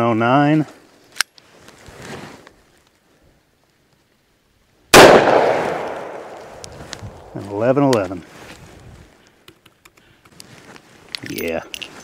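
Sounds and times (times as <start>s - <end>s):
revolver shot with echo: 5.0s - 6.6s.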